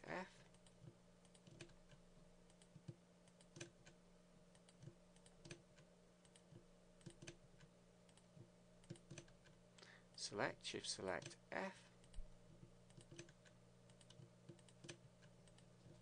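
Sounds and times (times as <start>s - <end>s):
faint steady hum: 0.0s - 16.0s
mouse and keyboard clicks: 6.2s - 9.6s, 12.9s - 16.0s.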